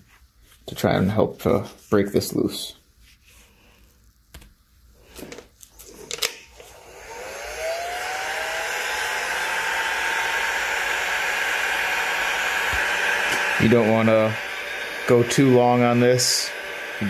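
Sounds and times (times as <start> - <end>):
heat gun fan blowing: 5.2 - 17.0.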